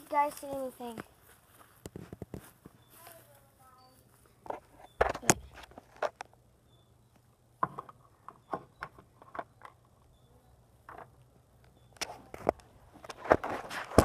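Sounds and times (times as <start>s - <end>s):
footsteps through grass and dry leaves: 0.0s - 4.8s.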